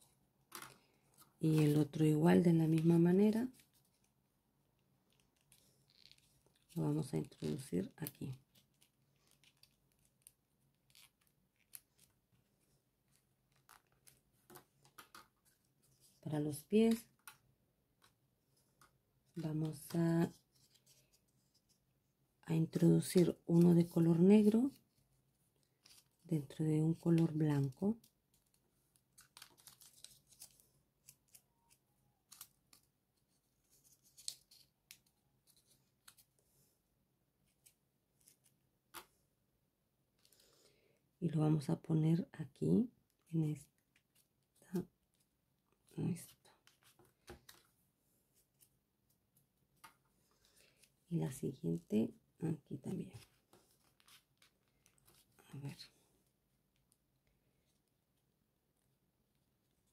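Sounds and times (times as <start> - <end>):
folded paper clicks and rustles: 28.3 - 31.4.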